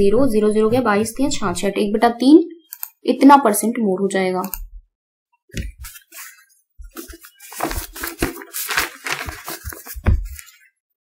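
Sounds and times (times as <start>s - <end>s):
paper rustling: 5.6s - 10.7s.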